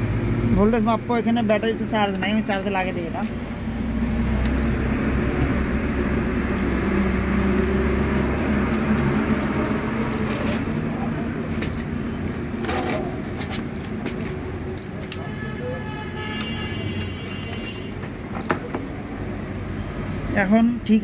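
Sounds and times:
short high beeps: 0.5s - 0.7s, 9.6s - 10.9s.

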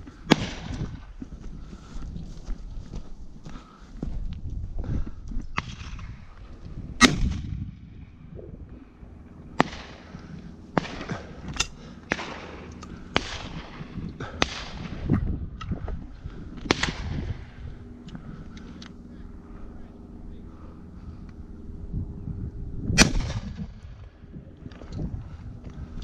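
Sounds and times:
shotgun shots echoing: 7.0s - 7.5s, 9.6s - 10.1s, 10.7s - 14.9s, 23.0s - 23.6s.

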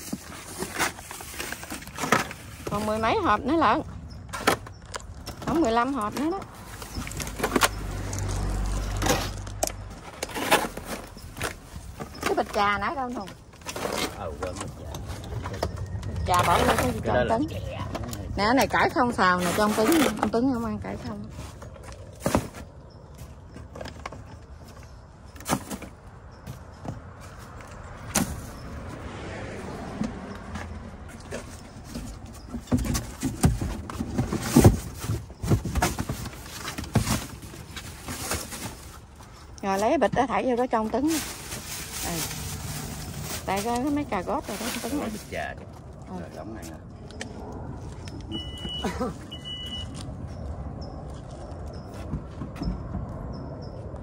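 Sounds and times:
plastic bags rustling: 0.0s - 3.3s, 33.1s - 40.0s, 40.6s - 45.9s
motor vehicle rumble: 0.0s - 54.0s
high electronic beeps: 48.3s - 50.0s.

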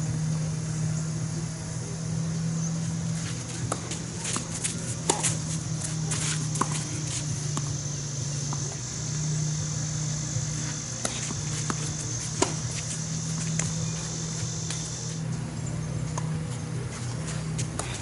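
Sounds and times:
low steady hum: 0.0s - 18.0s
high insect buzz: 2.5s - 15.2s
tennis ball hits: 3.2s - 7.8s, 10.6s - 14.9s.

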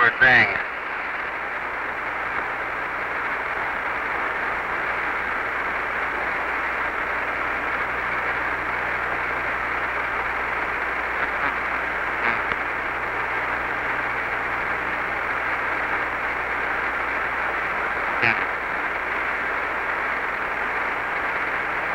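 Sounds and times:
faint low hum: 0.0s - 21.9s
radio static hiss: 0.0s - 21.9s
faint clicks: 12.2s - 12.7s.

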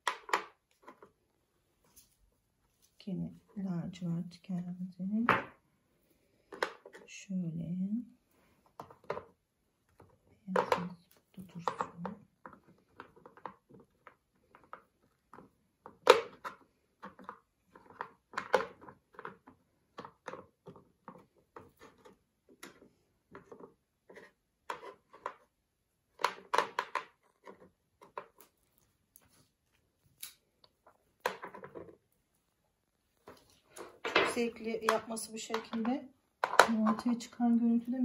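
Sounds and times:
pebbles clicking and knocking: 0.0s - 1.2s, 8.7s - 28.6s, 30.7s - 32.1s.

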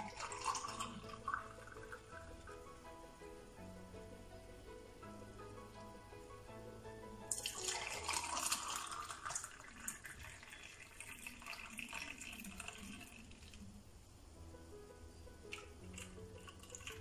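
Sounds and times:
juice pouring into a glass: 0.0s - 2.3s, 7.3s - 13.7s, 15.5s - 17.0s
faint background music: 0.0s - 17.0s.

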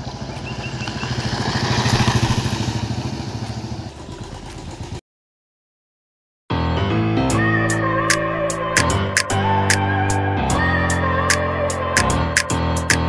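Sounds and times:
motorcycle engine running: 0.0s - 5.0s.

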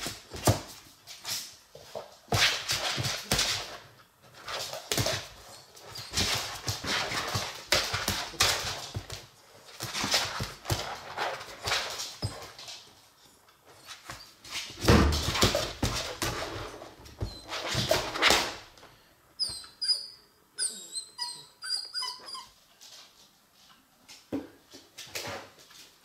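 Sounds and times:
puppy whining: 5.4s - 6.5s, 17.2s - 17.7s, 19.4s - 22.7s.

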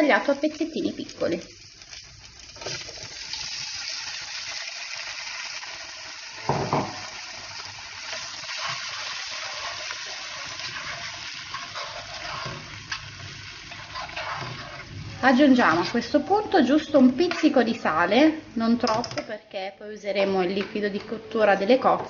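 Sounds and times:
tomatoes sizzling in oil: 0.0s - 18.9s
loud knock: 6.5s - 7.0s.

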